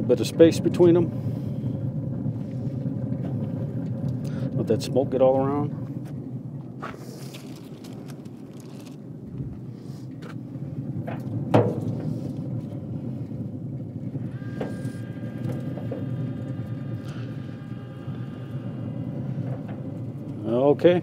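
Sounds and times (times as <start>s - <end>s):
steady low rumble: 0.0s - 21.0s
faint high whine: 11.2s - 21.0s.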